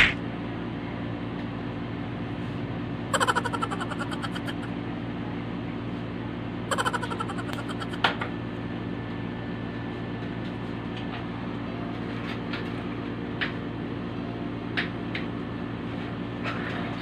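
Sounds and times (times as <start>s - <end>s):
electric fan humming: 3.0s - 5.6s, 6.4s - 9.6s.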